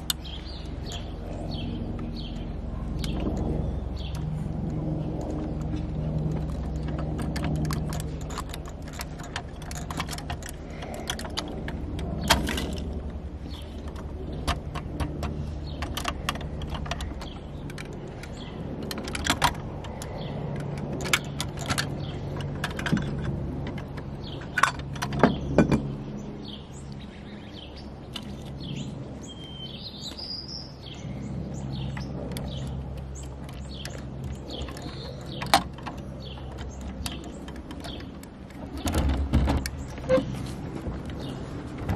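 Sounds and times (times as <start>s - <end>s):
bird chirping: 0.0s - 4.3s, 24.1s - 40.3s
low steady hum: 0.0s - 41.9s.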